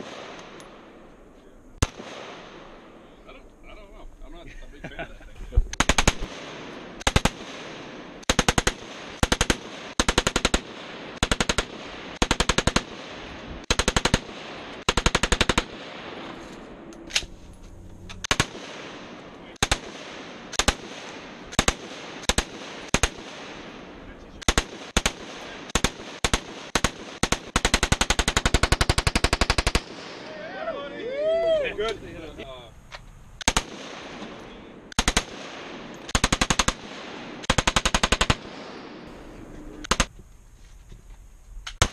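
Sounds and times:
machine gun bursts: 0:05.8 - 0:06.3, 0:37.4 - 0:38.4.

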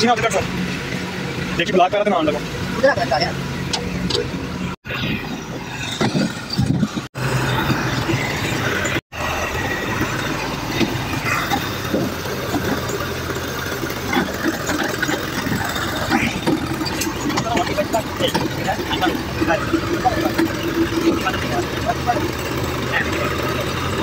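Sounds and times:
tractor engine running: 0:00.0 - 0:24.0
body rattling and clattering: 0:10.1 - 0:24.0.

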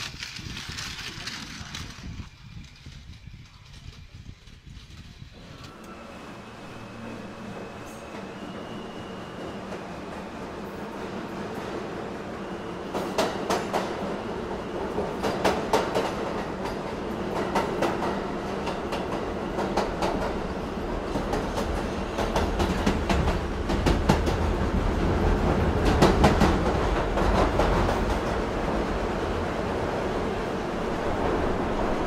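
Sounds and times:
toy train motor whir: 0:00.0 - 0:05.0
wheels clicking on track joints: 0:00.0 - 0:06.0.

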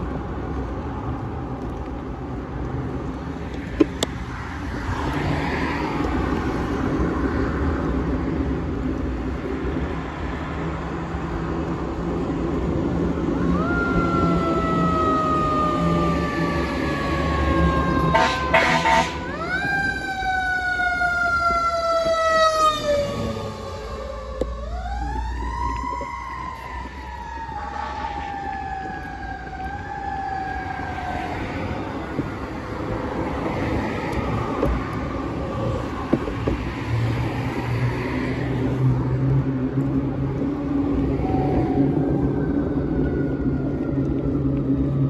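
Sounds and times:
road traffic passing: 0:00.0 - 0:45.0
siren wailing: 0:12.9 - 0:36.2, 0:40.8 - 0:45.0.

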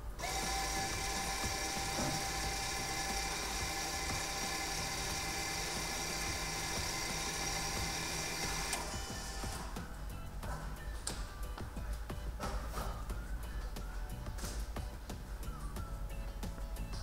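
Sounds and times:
brake motor geared whine: 0:00.2 - 0:09.8.

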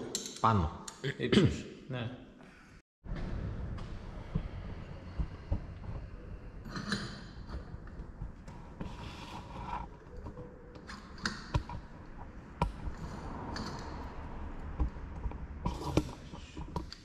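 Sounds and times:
low handling rumble: 0:03.0 - 0:08.8.

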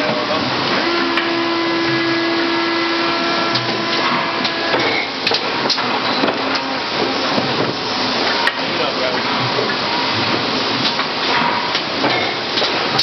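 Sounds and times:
factory machinery din: 0:00.0 - 0:13.0
machine hum: 0:00.0 - 0:13.0
clicks and clanks: 0:10.8 - 0:13.0.

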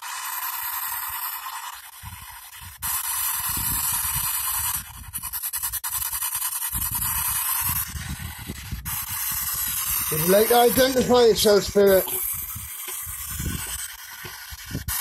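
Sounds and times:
fast ticking: 0:08.9 - 0:15.0
choppy low bursts: 0:10.0 - 0:12.2
white-noise radio static: 0:10.0 - 0:12.3.

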